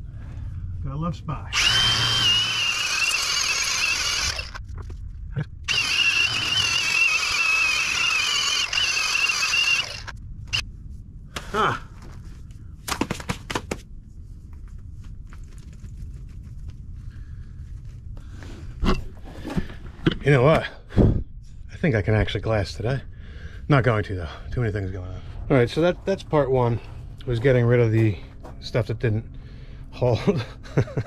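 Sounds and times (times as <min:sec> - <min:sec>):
drill grinding whine: 0:01.5 - 0:04.6, 0:05.6 - 0:10.6.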